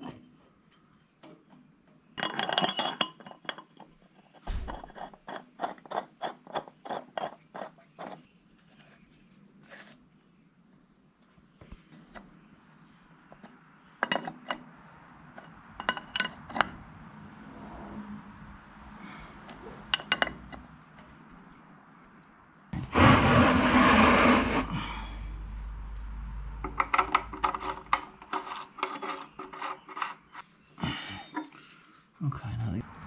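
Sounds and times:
loud rushing noise: 16.9s - 20.0s.

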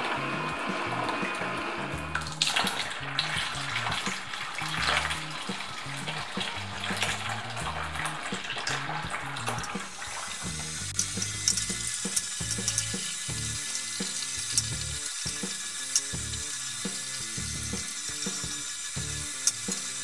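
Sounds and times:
juice pouring into plastic bucket: 0.0s - 11.3s
background music with bass line: 0.0s - 20.0s.

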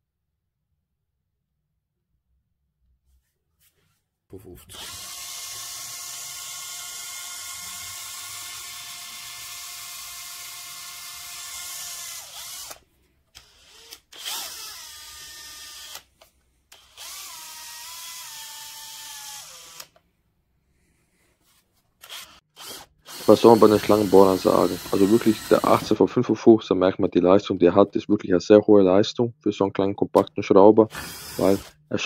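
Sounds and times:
cordless drill motor whining: 4.7s - 20.0s, 22.0s - 26.0s, 30.9s - 31.8s
drill clicks: 4.7s - 20.0s, 22.0s - 26.0s, 30.9s - 31.8s.

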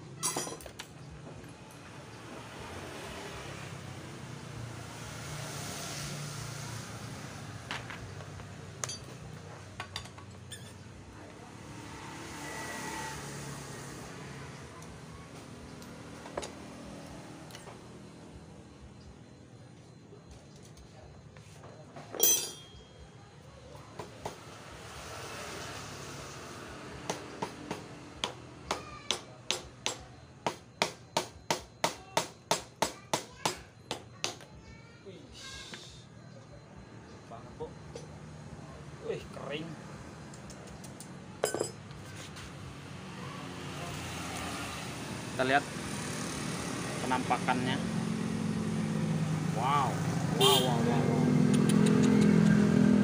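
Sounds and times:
metal hand tools clinking: 8.8s - 9.2s, 9.9s - 10.8s, 22.1s - 23.0s.

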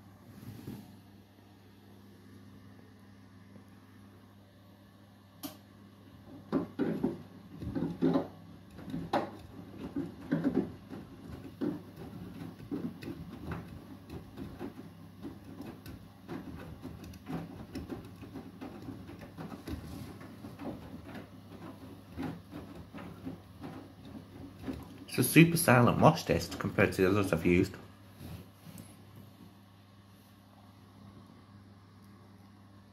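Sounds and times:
washing machine low hum: 0.0s - 32.9s
laundry tumbling in washing machine: 5.9s - 29.8s.

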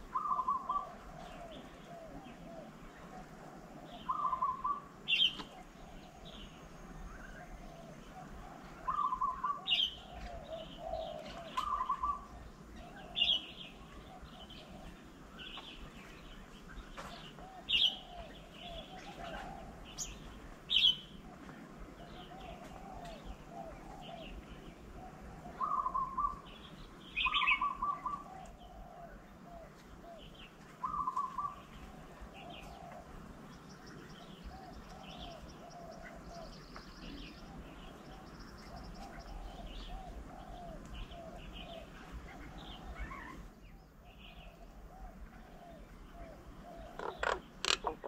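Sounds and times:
birds warbling chatter: 0.0s - 15.8s, 25.4s - 29.2s, 32.4s - 48.0s.

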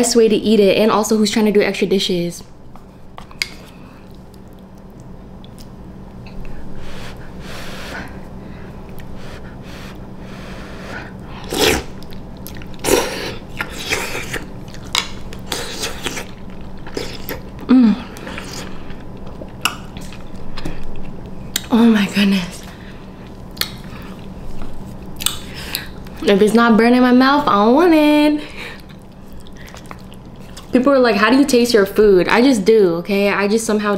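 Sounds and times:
chewing: 3.2s - 6.6s, 8.8s - 9.2s, 11.4s - 21.7s, 28.6s - 30.8s
person slurping noodles: 9.7s - 11.9s.

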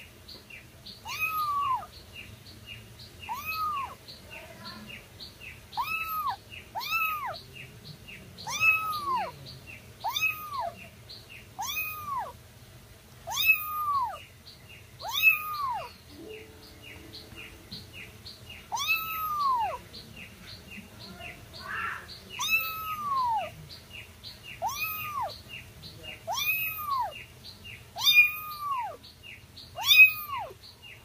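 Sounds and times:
faint even chirping: 0.0s - 12.4s, 13.2s - 31.0s
kitten meowing: 1.0s - 1.9s, 3.2s - 4.0s, 5.8s - 7.4s, 8.4s - 9.4s, 10.0s - 10.8s, 11.6s - 12.4s, 13.3s - 14.2s, 15.0s - 16.0s, 18.7s - 19.8s, 21.7s - 23.5s, 24.6s - 25.4s, 26.3s - 27.2s, 28.0s - 29.0s, 29.8s - 30.6s.

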